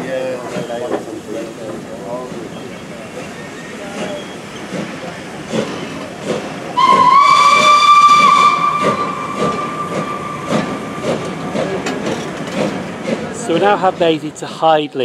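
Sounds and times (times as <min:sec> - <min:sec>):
clatter of moving train: 0:00.0 - 0:15.0
steam locomotive whistle: 0:06.7 - 0:11.2.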